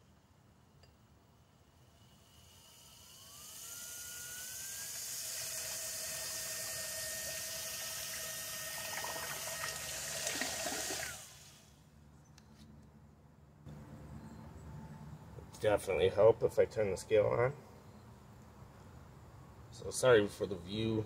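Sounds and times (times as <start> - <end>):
electric motor whine: 2.2 - 11.7.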